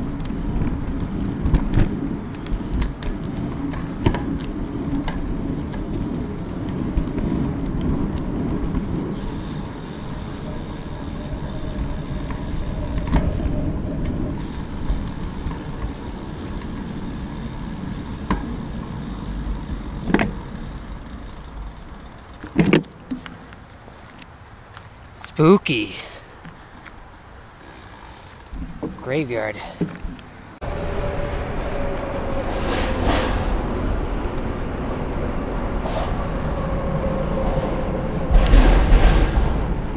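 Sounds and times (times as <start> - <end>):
tyres rumbling on pavement: 0.0 - 25.0, 26.3 - 39.9
bike clicks and knocks: 0.0 - 25.2, 26.4 - 30.3, 38.3 - 39.9.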